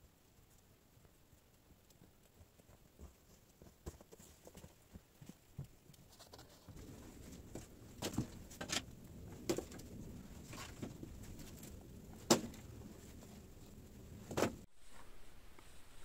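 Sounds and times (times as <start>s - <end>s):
low rustle: 3.0s - 16.0s
firewood branches cracking and knocking: 6.8s - 13.2s.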